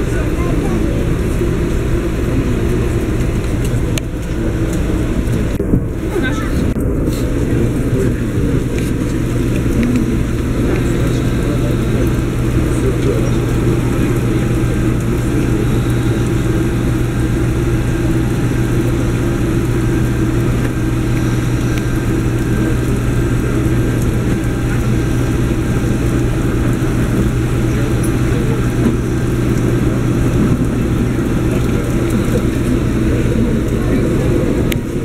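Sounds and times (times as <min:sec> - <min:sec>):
bus engine idling: 0:00.0 - 0:35.0.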